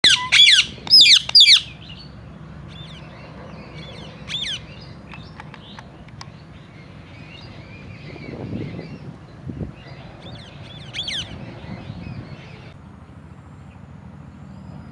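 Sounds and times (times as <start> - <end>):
parakeet squawking: 0.0 - 1.9, 4.0 - 4.8, 10.4 - 11.4
bird chirps and calls: 0.0 - 12.8.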